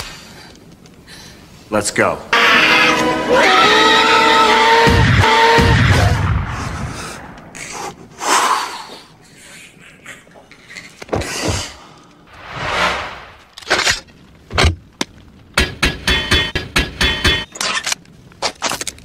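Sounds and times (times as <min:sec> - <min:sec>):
whooshing sweeps: 0:12.3 - 0:13.5
sharp knocks and clicks: 0:14.5 - 0:17.5.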